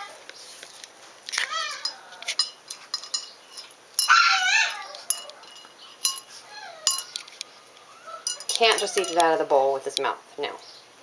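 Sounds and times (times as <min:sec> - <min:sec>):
kibble clinking in metal bowl: 0:01.8 - 0:07.2, 0:08.2 - 0:09.5
dog whining: 0:04.1 - 0:09.1.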